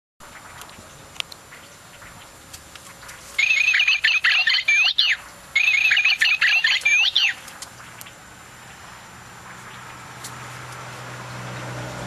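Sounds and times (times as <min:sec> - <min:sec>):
recorded birdsong from toy: 0:03.4 - 0:07.4.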